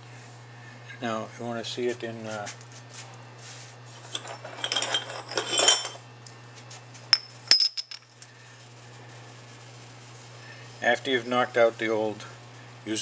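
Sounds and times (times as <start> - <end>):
metal clinks with ringing: 4.1 - 6.0, 7.1 - 8.1.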